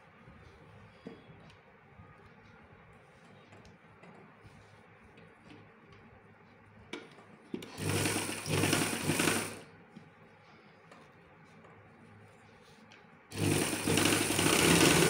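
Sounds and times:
sewing machine clicks: 0:07.6 - 0:09.6, 0:13.3 - 0:15.0
sewing machine stitching: 0:07.6 - 0:09.6, 0:13.3 - 0:15.0.

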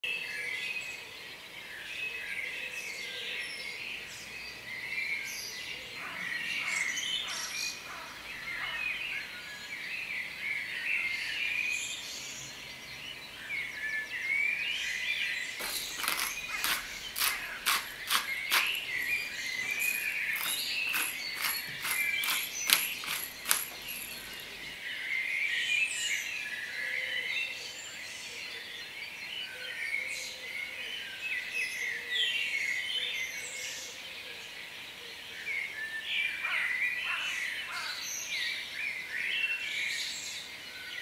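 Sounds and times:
birds chirping and singing: 0:00.1 - 0:41.0
sharp clicks: 0:15.6 - 0:24.3.

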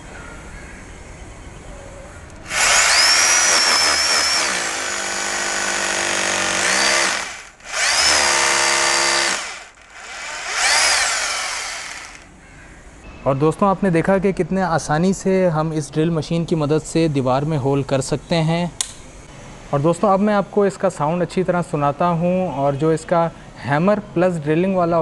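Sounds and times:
rotary hammer drilling into wall: 0:02.5 - 0:12.3.

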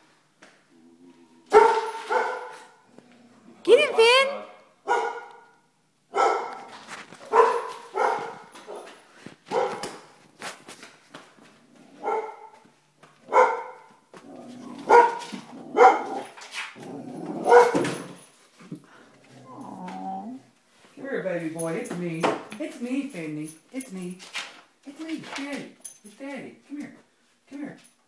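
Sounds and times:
dog barking: 0:01.5 - 0:02.8, 0:04.8 - 0:10.0, 0:12.0 - 0:14.0, 0:14.8 - 0:16.3, 0:17.4 - 0:18.0.

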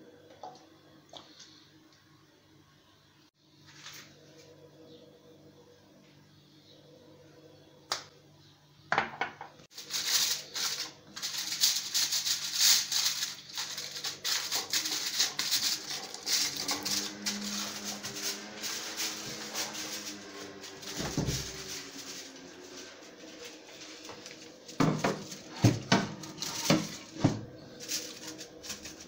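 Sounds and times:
aluminium foil crinkling: 0:09.7 - 0:29.0.

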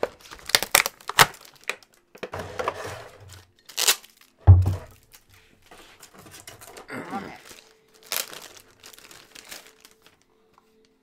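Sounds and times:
plastic packaging crackling: 0:00.0 - 0:05.3, 0:06.0 - 0:11.0
dull thump: 0:04.5 - 0:05.0.

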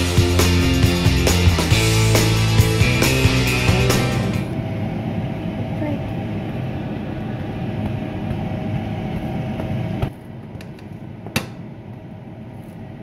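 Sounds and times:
low mechanical hum: 0:03.8 - 0:13.0.

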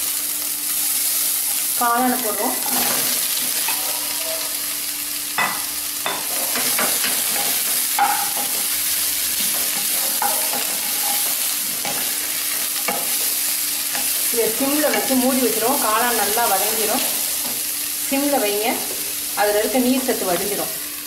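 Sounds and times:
food sizzling in hot oil: 0:00.0 - 0:21.0
spatula scraping a pan: 0:02.4 - 0:04.7, 0:06.1 - 0:14.3.

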